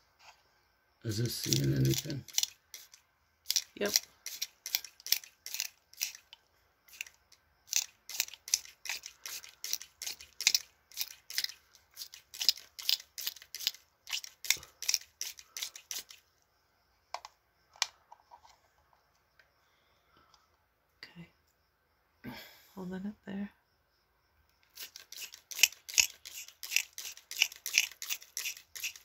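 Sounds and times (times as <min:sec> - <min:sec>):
spray bottle squirting: 0:01.4 - 0:16.2, 0:24.7 - 0:29.0.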